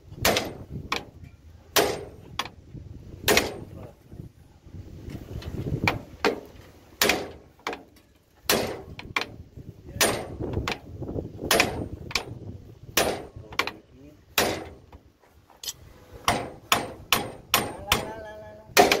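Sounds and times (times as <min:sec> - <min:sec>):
hammer striking metal: 0:16.3 - 0:18.2.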